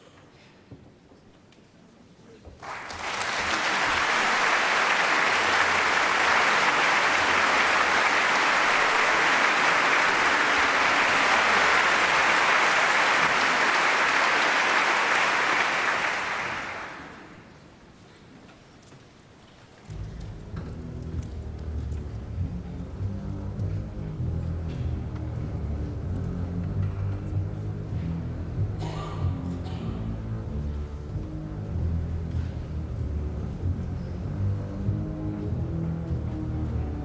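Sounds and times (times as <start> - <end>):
audience applauding: 2.6 - 17.6.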